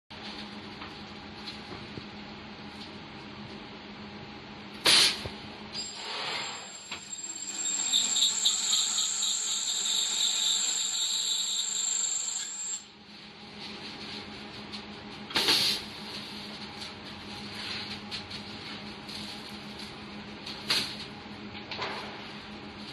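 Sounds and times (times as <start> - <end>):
high-pitched pulsing whine: 5.8 - 12.9.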